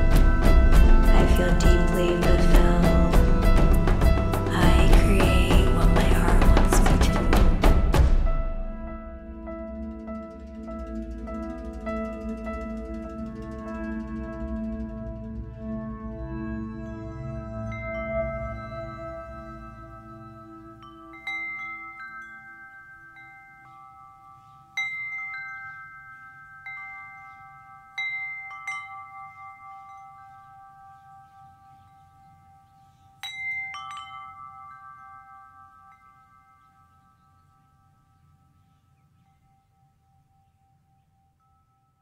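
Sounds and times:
soft low music drone: 0.0 - 40.6
chimes ringing: 16.5 - 42.0.

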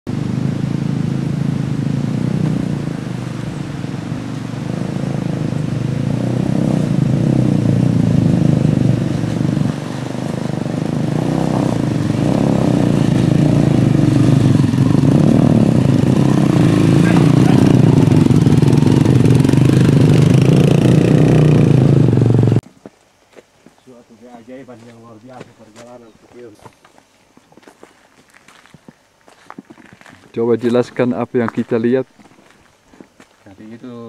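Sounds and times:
motorcycle engines running slowly: 0.1 - 22.6.

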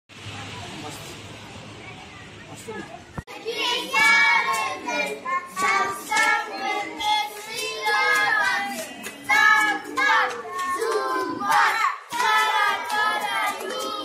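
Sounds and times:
children singing: 3.3 - 14.0.

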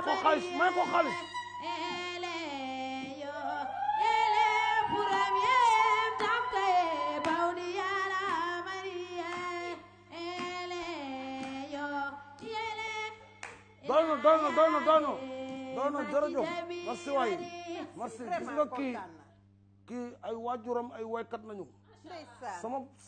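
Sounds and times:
woman singing long wavering notes: 0.0 - 12.2.

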